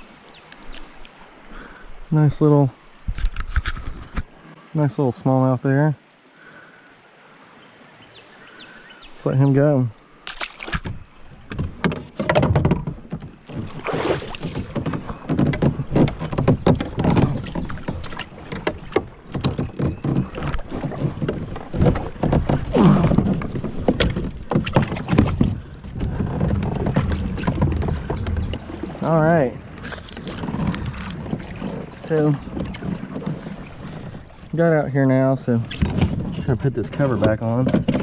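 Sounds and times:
water splashing around kayak: 0.0 - 38.0
knocks against kayak hull: 10.3 - 29.0.

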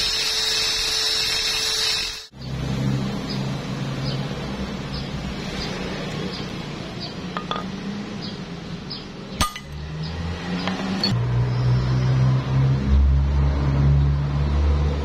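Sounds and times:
metallic clink: 7.4 - 7.7, 9.4 - 9.8.

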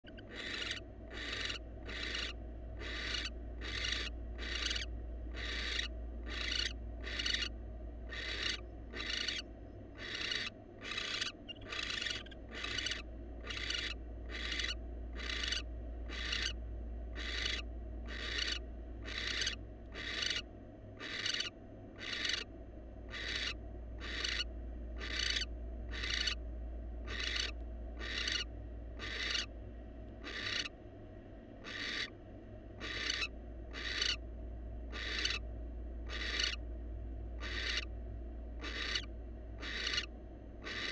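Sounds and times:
owl rasping hiss calls: 0.1 - 7.5, 8.1 - 9.4, 10.0 - 20.4, 21.0 - 22.5, 23.1 - 26.4, 27.1 - 29.5, 30.2 - 30.7, 31.6 - 32.1, 32.8 - 34.2, 34.9 - 35.4, 36.1 - 36.6, 37.4 - 37.9, 38.6 - 40.9.

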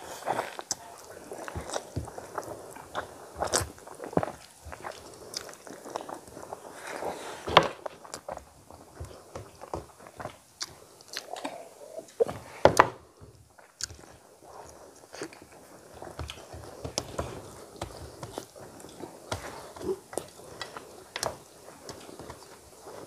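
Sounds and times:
chewing and mouth smacks: 0.2 - 6.8, 7.9 - 12.3.

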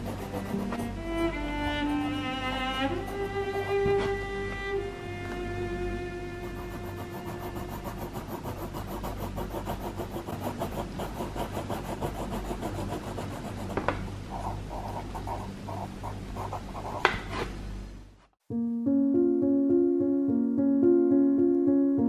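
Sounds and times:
pencil scratching on paper: 0.0 - 0.9, 3.0 - 3.8, 6.4 - 17.5.

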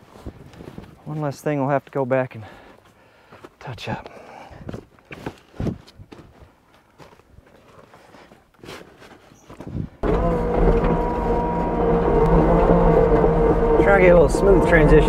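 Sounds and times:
diesel engine running loud: 10.0 - 15.0.

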